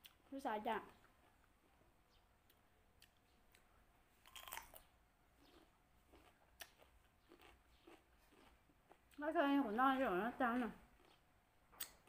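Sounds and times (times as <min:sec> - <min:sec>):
crunchy chewing of cucumber: 0:02.4 - 0:09.3, 0:10.5 - 0:12.0.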